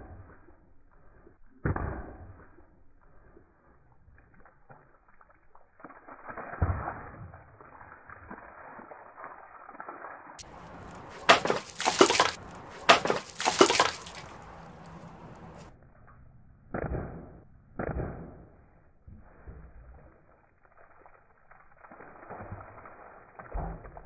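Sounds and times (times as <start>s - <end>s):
water gushing and splashing: 4.2s - 15.7s, 19.9s - 24.0s
loud knocks and clatter: 11.2s - 14.2s.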